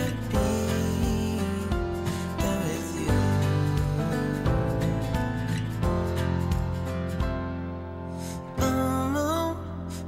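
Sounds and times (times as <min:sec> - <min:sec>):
slow song with singing: 0:00.0 - 0:05.7, 0:08.2 - 0:10.0.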